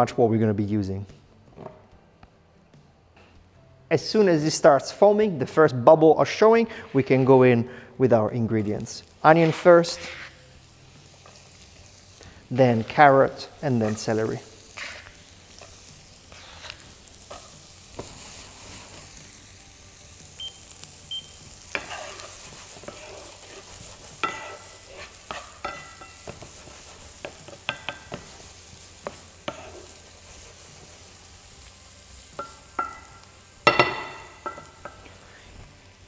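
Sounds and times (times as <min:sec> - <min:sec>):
vegetables sizzling in butter: 0:08.4 - 0:36.0
utensil knocking and scraping pan: 0:21.7 - 0:28.3.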